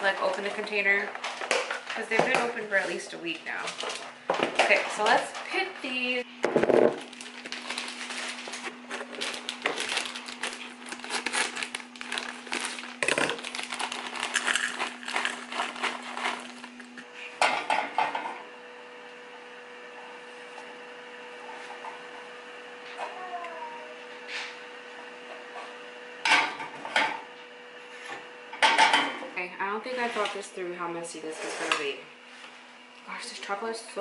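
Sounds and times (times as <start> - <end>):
plastic bag crinkling: 6.6 - 17.1
stirring scrapes in a saucepan: 31.3 - 31.9.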